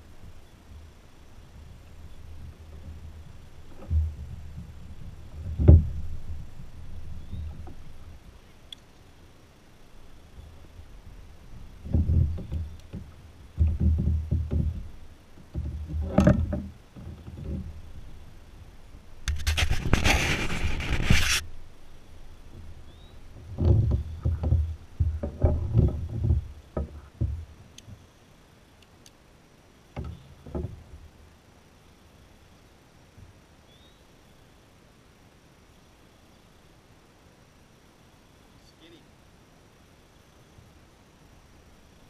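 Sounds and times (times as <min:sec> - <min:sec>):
faint ticks: 0:01.8 - 0:09.1, 0:10.1 - 0:18.2, 0:26.2 - 0:28.0, 0:28.7 - 0:29.2
thumps in a kayak hull: 0:02.2 - 0:08.2, 0:10.5 - 0:18.4, 0:22.5 - 0:28.0, 0:29.9 - 0:31.0.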